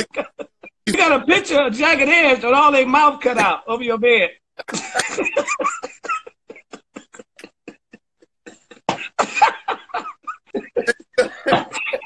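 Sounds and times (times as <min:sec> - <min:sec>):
men laughing hard: 0:00.0 - 0:01.1, 0:04.6 - 0:12.0.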